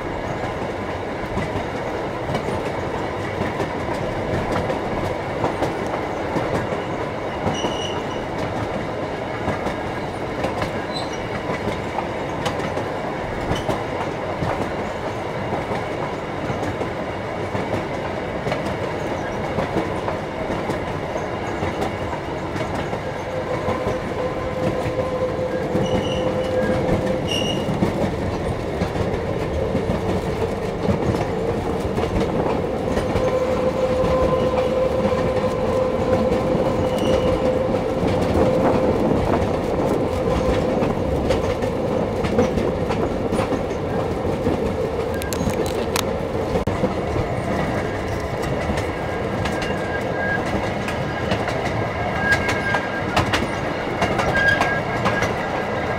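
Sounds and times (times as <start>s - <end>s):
train wheels rumbling on rails: 0.0s - 55.9s.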